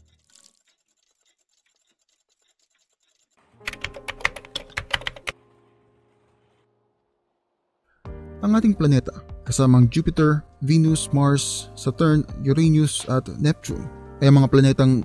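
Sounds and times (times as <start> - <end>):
keyboard clicks: 0.0 - 5.4.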